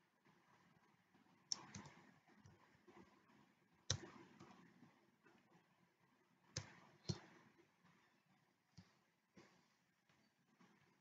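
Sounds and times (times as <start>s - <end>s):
computer keys clicking: 1.5s - 2.6s, 3.9s - 4.6s.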